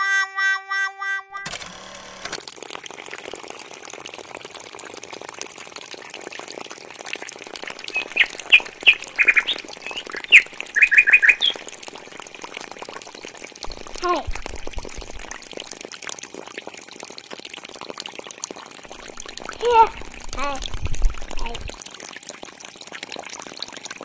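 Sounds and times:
water pouring from a pipe: 2.3 - 24.0
small bird chirping: 7.8 - 11.7.

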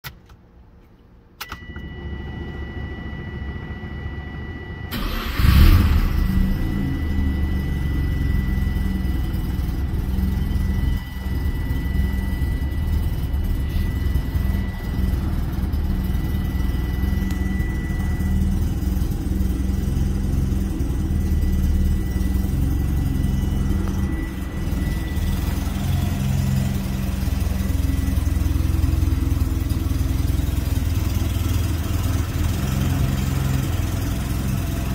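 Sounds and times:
thin steady high tone: 1.6 - 34.9
rotary engine cranking and starting: 4.9 - 10.4.

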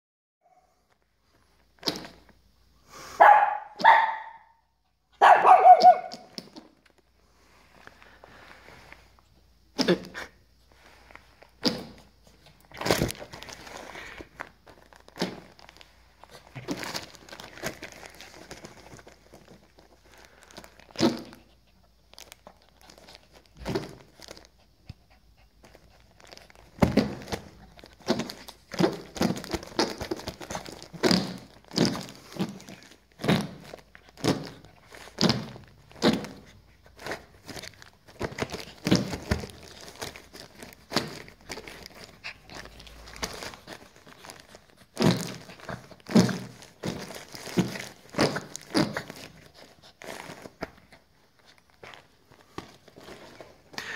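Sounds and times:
fart toy noises: 20.9 - 21.4, 30.9 - 33.6, 35.2 - 36.4, 45.0 - 46.6, 48.1 - 49.3.

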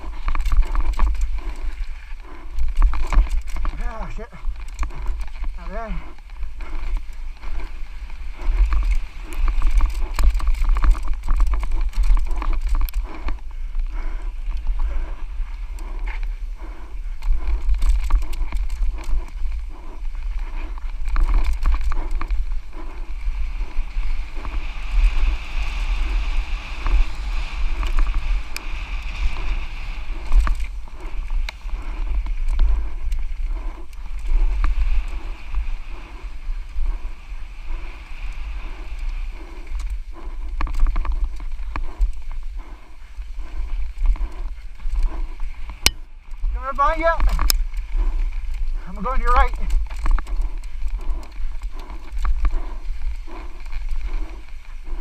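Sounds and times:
bike clicks and rattles: 0.0 - 55.0
wind rumbling on microphone: 0.0 - 55.0.

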